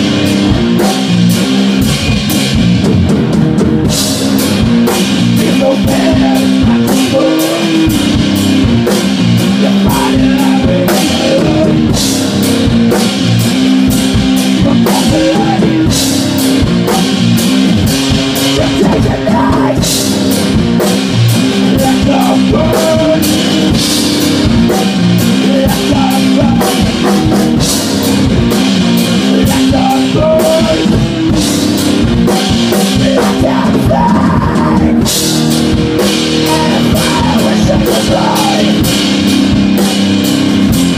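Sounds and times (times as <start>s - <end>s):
drum kit beating: 0.0s - 40.9s
electric guitar: 0.0s - 40.9s
person singing into microphone: 5.4s - 8.0s, 9.4s - 11.9s, 14.5s - 16.0s, 18.4s - 19.9s, 21.6s - 23.6s, 25.2s - 27.1s, 29.3s - 31.0s, 32.8s - 35.1s, 36.4s - 39.0s.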